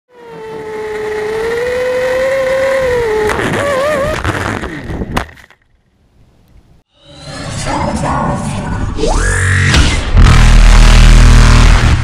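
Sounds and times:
quadcopter motors whining: 0.1s - 4.2s.

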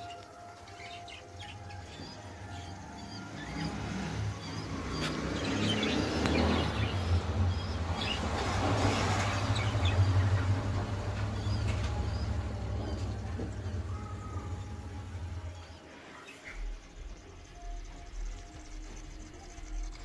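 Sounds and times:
aquarium pump humming: 0.0s - 20.0s
faint bird chirps: 11.2s - 20.0s.

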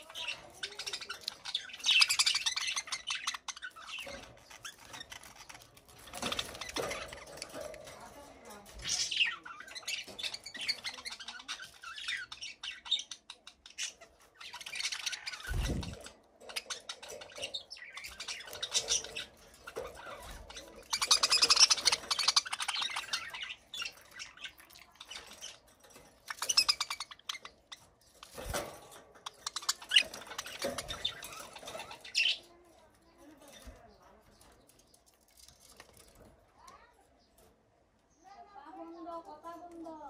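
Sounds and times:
budgerigars chirping: 0.0s - 7.9s, 8.5s - 32.5s.

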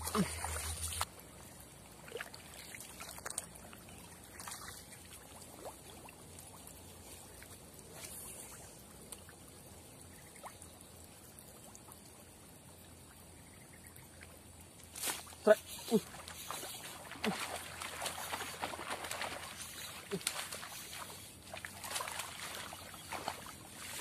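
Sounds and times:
faint trickling water: 0.0s - 24.0s
light ticks and rustles: 6.2s - 9.6s, 14.6s - 24.0s.

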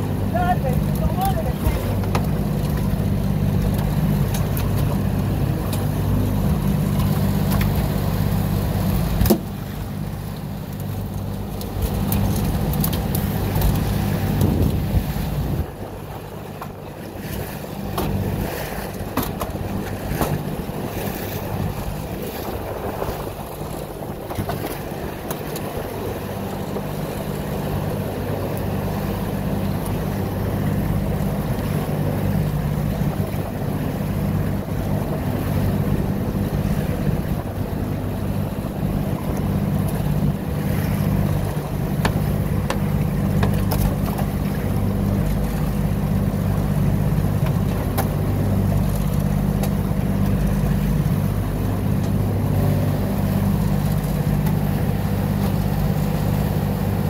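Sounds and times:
boat engine humming: 0.0s - 57.0s
water rushing along hull: 0.0s - 57.0s
wind on microphone: 12.0s - 28.9s.

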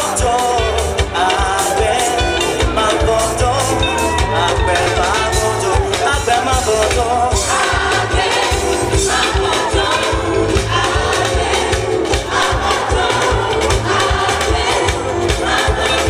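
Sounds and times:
drum kit and keyboard beat: 0.0s - 16.0s
choir singing together: 7.3s - 16.0s.

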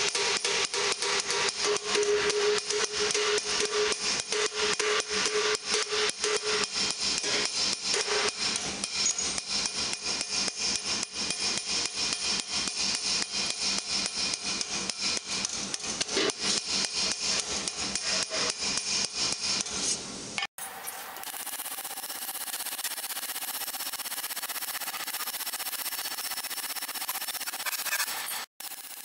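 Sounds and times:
hammer clanging on hot steel: 0.0s - 19.8s.

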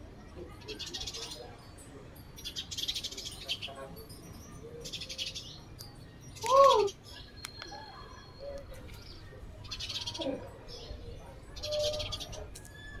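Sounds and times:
macaque coo calls: 6.4s - 7.0s.

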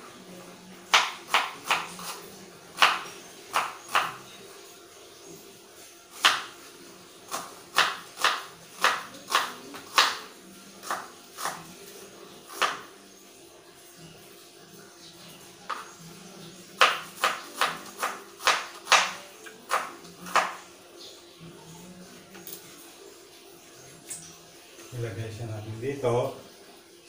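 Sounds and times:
knife chopping on cutting board: 0.9s - 2.2s, 2.8s - 4.2s, 6.2s - 6.5s, 7.3s - 11.7s, 12.5s - 12.9s, 16.8s - 20.6s.

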